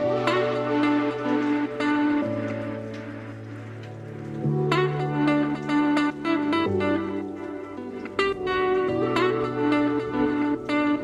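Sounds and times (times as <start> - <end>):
soft background music chord: 0.0 - 11.0.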